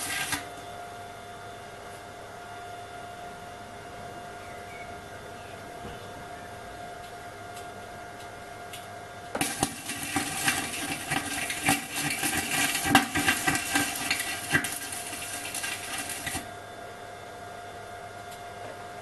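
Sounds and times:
arc welding crackling sizzle: 0.0s - 0.7s, 8.7s - 16.6s.

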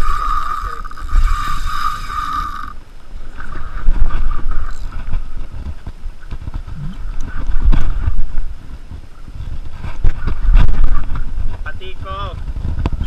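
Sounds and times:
fishing reel whirring: 0.0s - 5.3s
low rumble: 6.5s - 13.0s.

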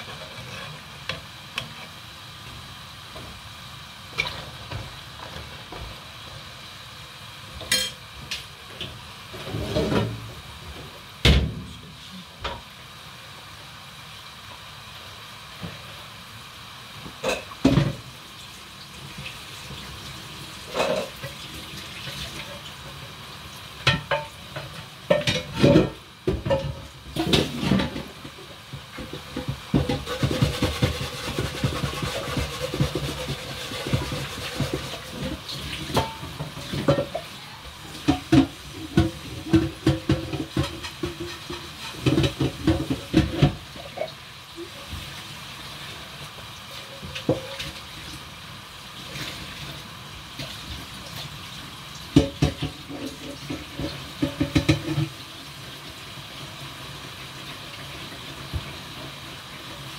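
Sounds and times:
utensils and dishes clattering: 7.6s - 8.0s, 20.7s - 21.4s, 23.8s - 28.3s, 29.0s - 44.2s, 52.2s - 55.1s.

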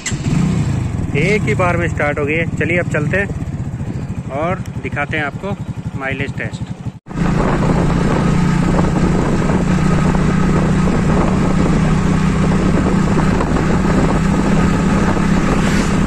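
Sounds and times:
motorcycle engine humming: 0.0s - 16.0s
rush of wind noise: 7.1s - 16.0s.

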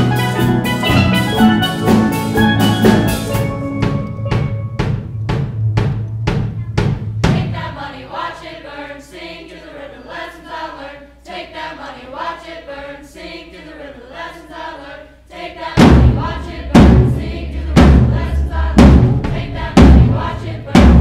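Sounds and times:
steel band playing pop tune: 0.0s - 7.7s, 15.8s - 21.0s
drum beats: 0.0s - 8.0s, 15.8s - 21.0s.

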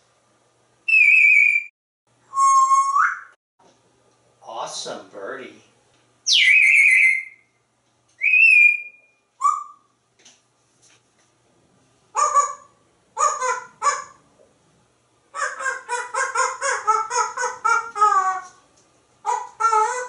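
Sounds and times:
parrot whistling: 0.9s - 1.7s, 2.3s - 3.4s, 6.3s - 7.5s, 8.2s - 9.9s
parrot mimicking dog barks: 12.2s - 14.2s, 15.4s - 18.4s, 19.2s - 20.0s.

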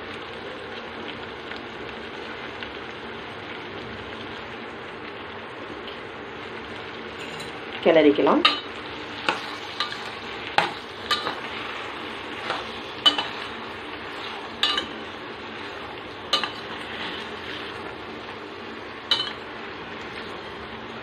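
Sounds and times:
food sizzling in a pan: 0.0s - 21.0s
spoon scraping a pan: 8.4s - 18.0s, 19.1s - 19.4s.

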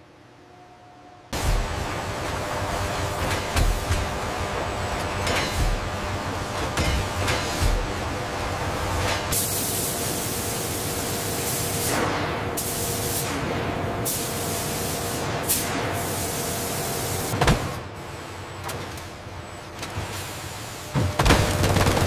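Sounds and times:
machinery hum: 0.0s - 22.0s
sharp machine clank: 5.2s - 5.8s.

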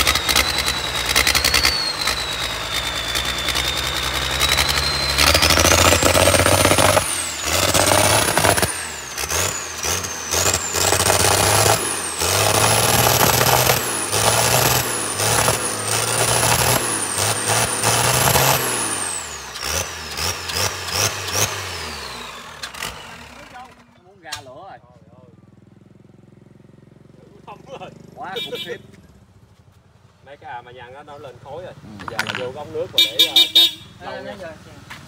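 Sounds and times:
diesel engine revving: 0.0s - 24.0s
high engine whine: 0.0s - 24.4s, 31.1s - 33.8s.

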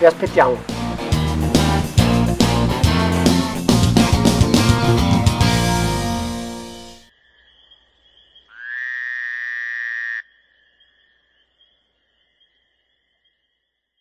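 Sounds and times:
rock music: 0.0s - 7.1s
frog-like croak sound effect: 7.1s - 13.3s.

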